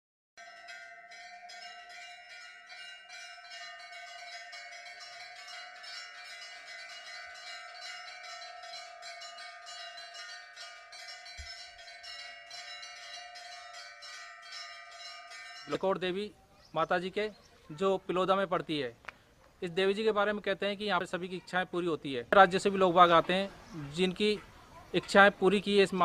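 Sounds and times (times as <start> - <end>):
bells ringing: 0.4 - 18.8.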